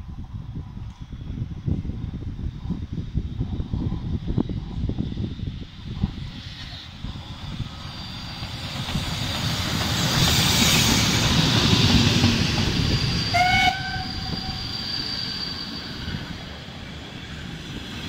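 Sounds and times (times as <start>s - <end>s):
steam train rolling past: 1.1s - 18.0s
thin high squeal: 14.0s - 16.4s.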